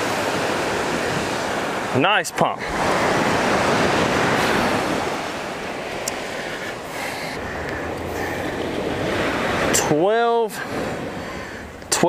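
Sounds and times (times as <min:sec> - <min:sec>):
surf breaking on beach: 0:00.0 - 0:12.0
wind on microphone: 0:02.6 - 0:11.9.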